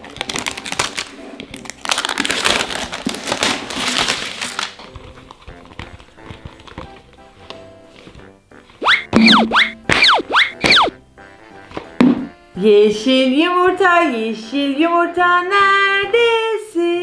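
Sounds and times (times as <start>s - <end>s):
plastic wrapper crinkling and tearing: 0.0s - 7.6s
handling plastic egg: 0.0s - 8.8s.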